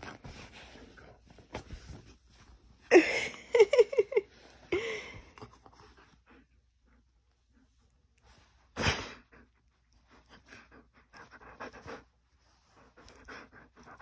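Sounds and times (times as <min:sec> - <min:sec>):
rustling of fur and bedding: 0:00.0 - 0:02.9.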